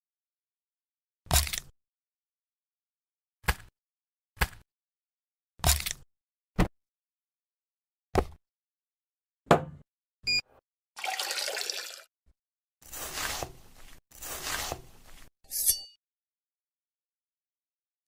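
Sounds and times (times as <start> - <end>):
cola poured and fizzing: 11.0 - 12.1
knife cutting watermelon: 12.8 - 15.8.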